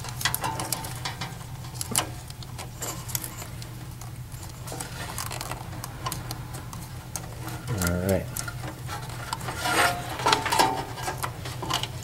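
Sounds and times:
small clicks and rustles: 0.0 - 12.0
steady low hum: 0.0 - 12.0.

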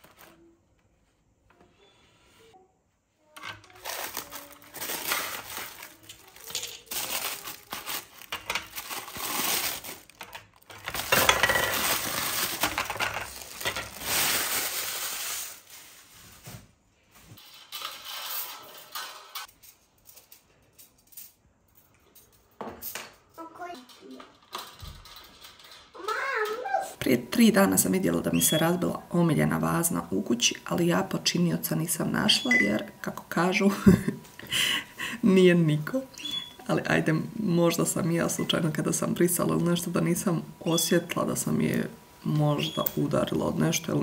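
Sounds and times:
paper and cardboard rustling: 0.0 - 0.6, 3.6 - 20.6.

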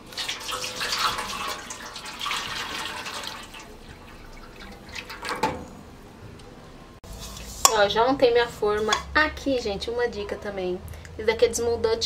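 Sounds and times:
water pouring into metal tray: 0.0 - 5.8.

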